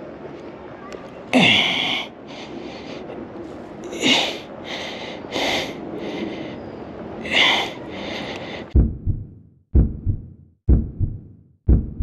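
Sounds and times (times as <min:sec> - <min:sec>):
person breathing hard: 0:01.4 - 0:03.2, 0:03.9 - 0:08.8.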